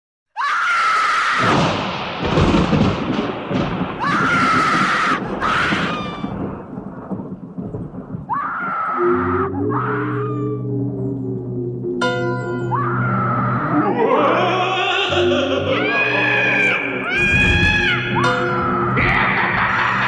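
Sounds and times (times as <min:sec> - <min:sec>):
heavy rain: 0:00.9 - 0:09.6
rumbling thunder: 0:01.4 - 0:09.1, 0:17.1 - 0:18.2
person screaming: 0:04.0 - 0:06.3, 0:08.3 - 0:10.7, 0:12.7 - 0:19.8
low synth chord: 0:10.7 - 0:12.8.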